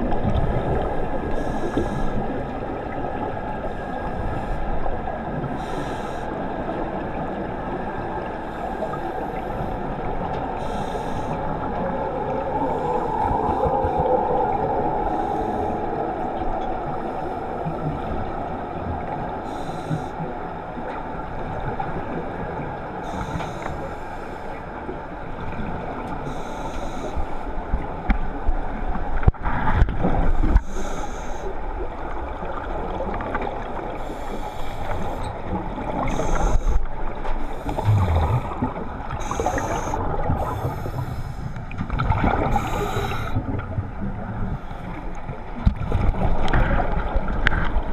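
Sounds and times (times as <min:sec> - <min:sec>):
steady underwater rumble: 0:00.0 - 0:47.9
scuba regulator breathing: 0:01.3 - 0:02.4, 0:05.6 - 0:06.4, 0:10.6 - 0:11.5, 0:15.0 - 0:16.0, 0:19.4 - 0:20.2, 0:23.0 - 0:24.6, 0:26.2 - 0:27.4, 0:30.4 - 0:31.6, 0:34.0 - 0:35.4, 0:36.0 - 0:41.8, 0:42.4 - 0:43.5
exhaled bubbles bursting: 0:37.7 - 0:40.6.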